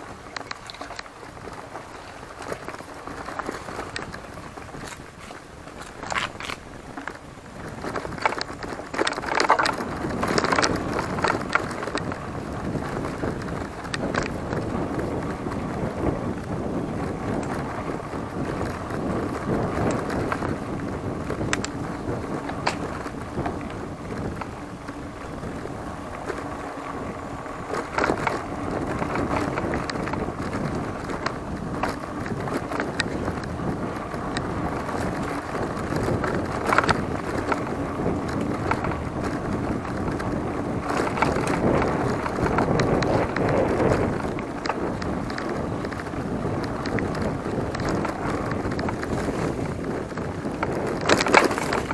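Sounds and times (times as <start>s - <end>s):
bike tyre ride noise: 0.0s - 51.9s
wind buffeting microphone: 0.0s - 51.9s.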